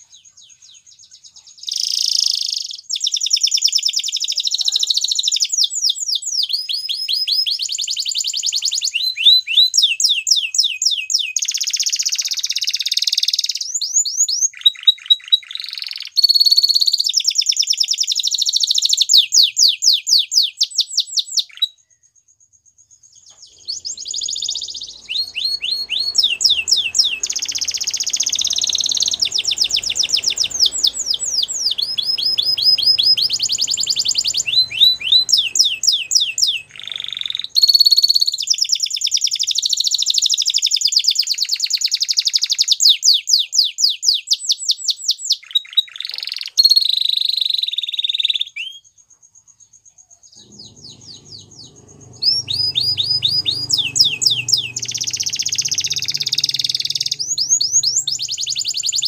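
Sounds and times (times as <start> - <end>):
canary singing trills: 23.0 - 40.8, 50.1 - 59.0.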